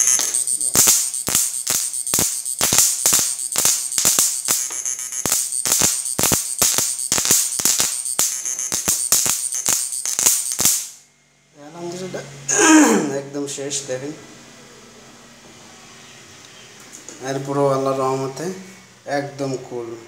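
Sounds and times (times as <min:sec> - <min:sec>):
electric arc cracking snaps: 0:00.0 - 0:11.0
steady high whine: 0:00.0 - 0:12.6.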